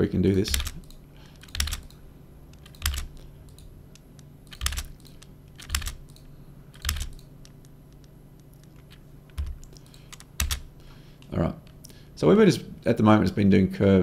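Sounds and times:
keyboard key strikes: 9.3 - 10.6.

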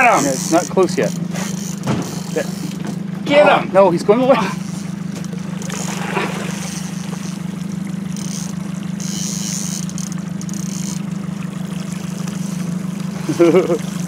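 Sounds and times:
boat engine humming: 0.0 - 14.0
water splashing: 4.2 - 14.0.

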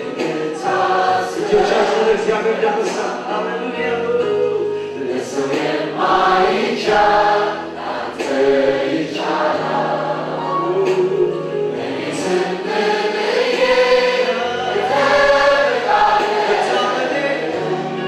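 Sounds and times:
gospel choir singing: 0.0 - 18.0.

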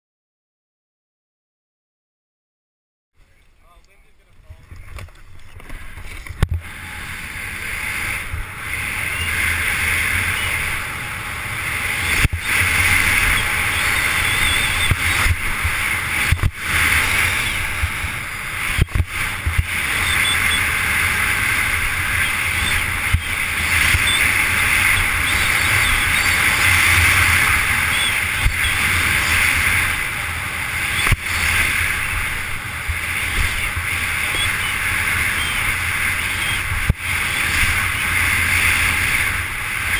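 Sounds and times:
wind rushing past camera: 4.5 - 39.9
snowboard scraping over snow: 5.7 - 39.9.

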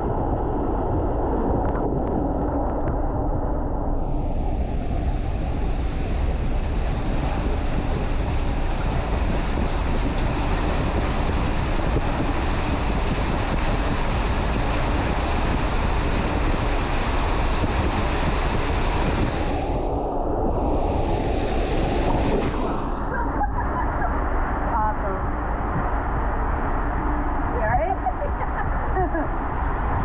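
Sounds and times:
wind buffeting microphone: 0.0 - 30.0
water rushing down slide: 4.2 - 26.1.

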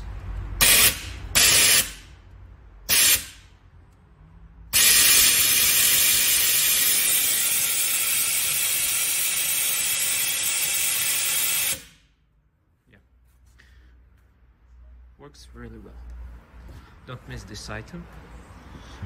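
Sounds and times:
compressed air hissing: 0.6 - 2.1, 2.9 - 3.5, 4.8 - 12.0.

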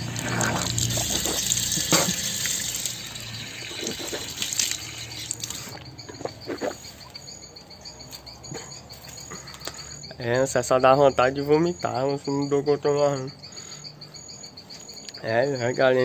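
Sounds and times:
water running from tap: 0.0 - 5.8
man rinsing mouth: 0.0 - 6.8
crickets chirping: 0.0 - 16.0.

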